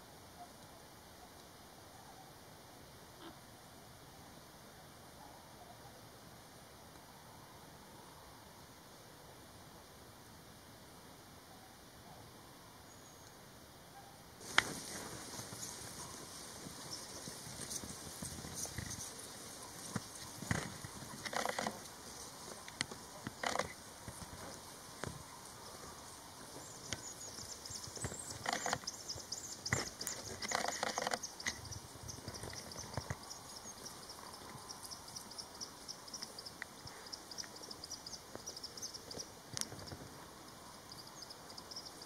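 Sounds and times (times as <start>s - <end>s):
birds rustling in dry grass: 14.4s - 42.0s
insects chirring: 14.4s - 42.0s.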